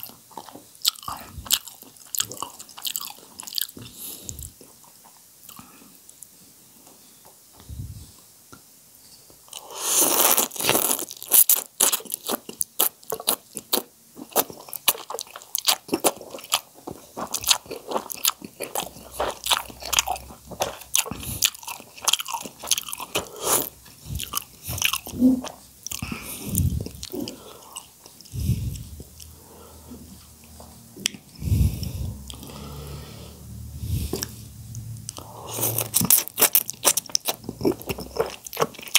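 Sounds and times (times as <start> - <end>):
wet chewing with smacks: 0.0 - 5.6, 11.8 - 29.4, 35.1 - 38.9
person slurping noodles: 9.6 - 11.1, 18.6 - 30.2, 31.4 - 36.9.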